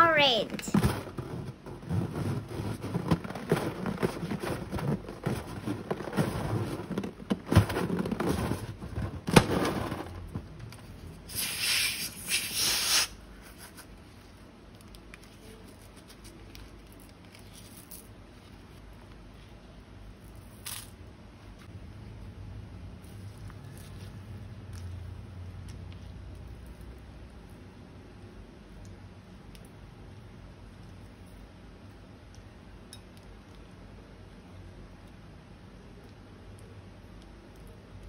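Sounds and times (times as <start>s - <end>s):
hiss: 11.3s - 13.2s.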